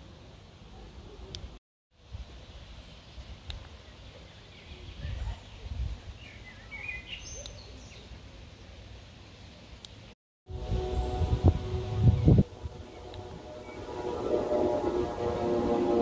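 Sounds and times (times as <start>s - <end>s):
low rumbles: 10.5s - 16.0s.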